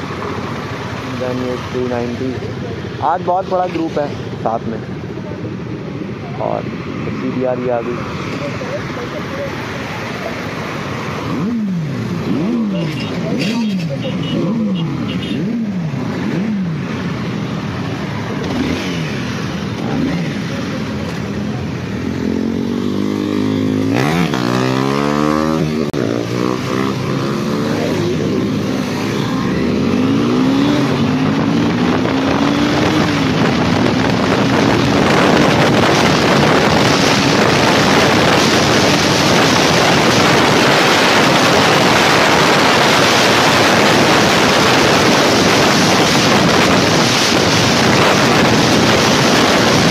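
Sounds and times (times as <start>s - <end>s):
engines revving nearby: 0.0s - 5.2s, 5.9s - 49.9s
motorcycle engine accelerating: 17.9s - 49.9s
wind noise on microphone: 28.2s - 49.9s.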